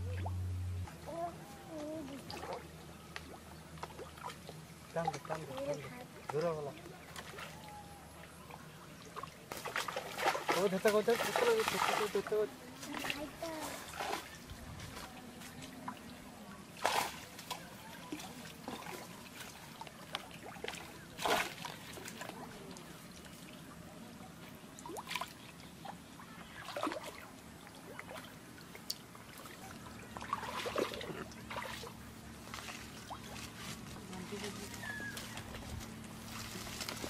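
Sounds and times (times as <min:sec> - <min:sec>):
water trickling and dripping: 0:01.6 - 0:14.4, 0:17.4 - 0:32.1
fish flapping in wet net: 0:09.5 - 0:12.3.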